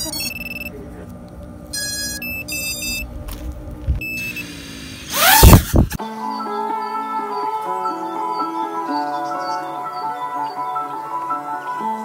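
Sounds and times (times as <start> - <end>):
drone motor beeping tones: 0.0 - 0.8, 1.7 - 3.2, 4.0 - 7.5
drone motors whining: 0.0 - 6.0.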